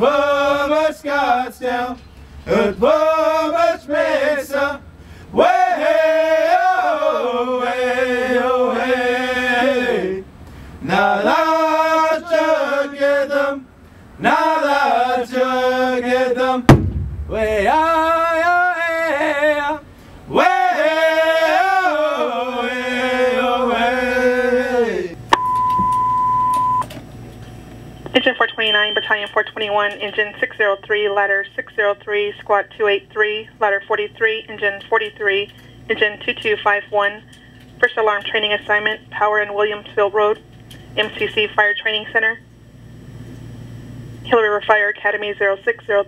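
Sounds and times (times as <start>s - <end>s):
man chanting: 17.3s - 20.8s
steady high alert beep: 25.3s - 26.9s, 28.5s - 29.2s.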